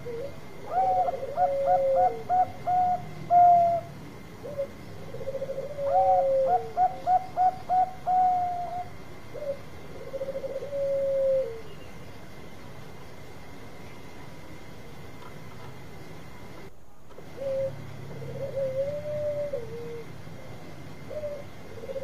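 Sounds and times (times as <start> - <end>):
dove cooing: 0.0 - 12.0, 17.2 - 22.0.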